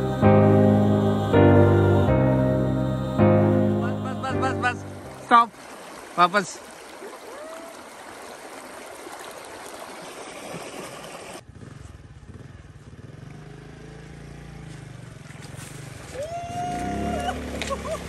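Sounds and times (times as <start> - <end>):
river water splashing around wader: 4.0 - 11.6, 14.5 - 18.0
small motorcycle engine running: 11.4 - 16.1.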